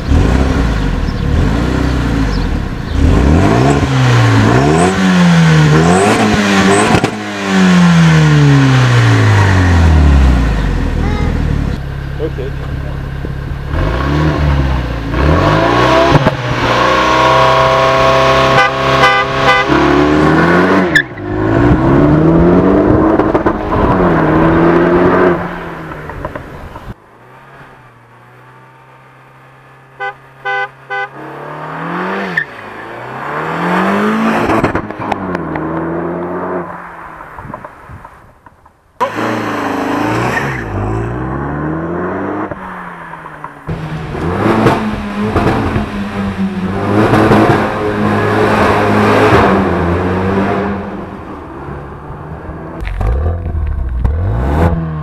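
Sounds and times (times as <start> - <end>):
car engine accelerating hard: 0.0 - 36.7, 39.0 - 55.0.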